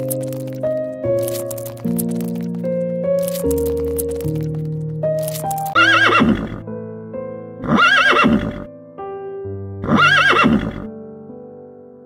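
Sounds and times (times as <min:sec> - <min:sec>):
background music sustained notes: 0:00.0 - 0:12.0
horse whinnying: 0:05.8 - 0:06.6, 0:07.6 - 0:08.7, 0:09.8 - 0:10.9.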